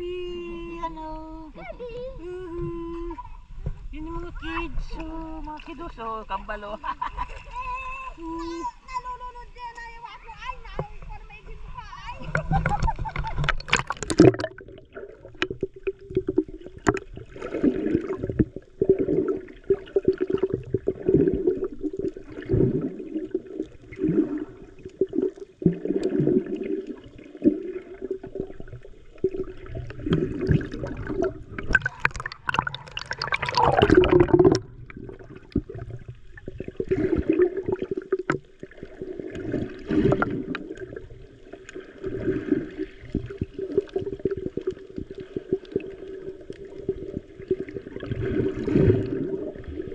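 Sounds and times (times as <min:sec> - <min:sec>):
muffled water gurgling underwater: 0:11.6 - 0:49.9.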